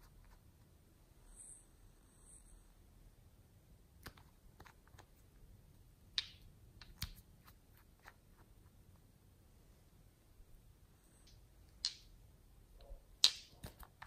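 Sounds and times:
plastic bottle caps clicking: 13.2 - 14.0.

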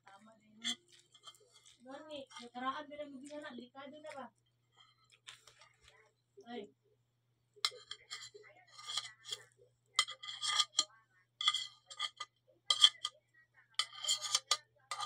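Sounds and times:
metal spoon clinking on plate: 0.6 - 1.4, 7.7 - 9.4, 10.0 - 13.1, 13.8 - 15.0.

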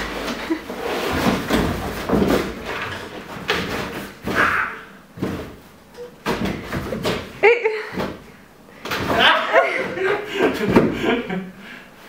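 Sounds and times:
cardboard scraping rustles: 0.0 - 4.4.

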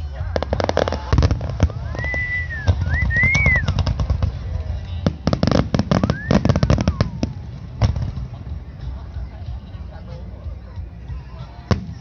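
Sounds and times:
firework whistling: 0.6 - 4.5, 5.2 - 7.4.

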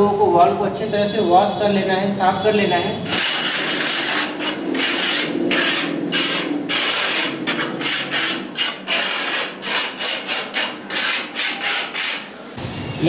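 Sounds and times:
steel blade scraping rough wall: 3.1 - 12.6.

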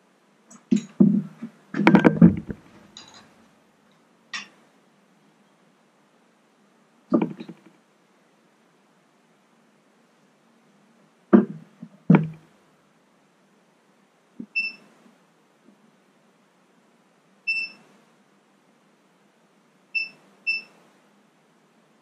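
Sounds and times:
multimeter beeps: 14.5 - 14.9, 17.5 - 17.9, 20.0 - 20.8.

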